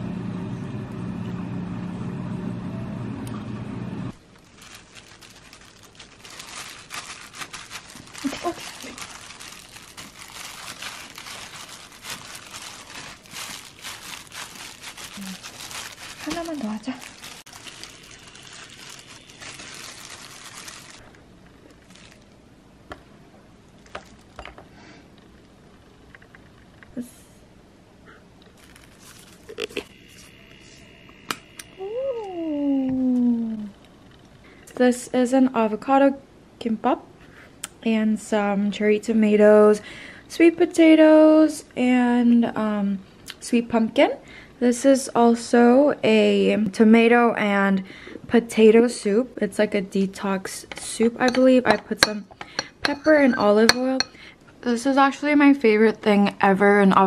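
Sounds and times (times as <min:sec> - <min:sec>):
plastic gloves crinkling: 0:04.2 - 0:22.5, 0:23.7 - 0:24.4, 0:28.5 - 0:29.9.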